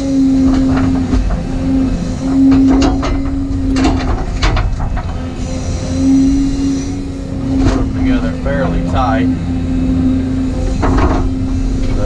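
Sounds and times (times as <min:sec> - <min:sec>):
excavator engine and hydraulics humming: 0:00.0 - 0:12.0.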